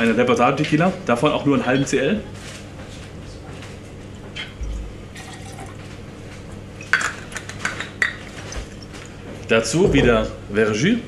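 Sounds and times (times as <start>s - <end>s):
liquid trickling into jigger: 4.6s - 5.8s
low thump: 9.8s - 10.2s.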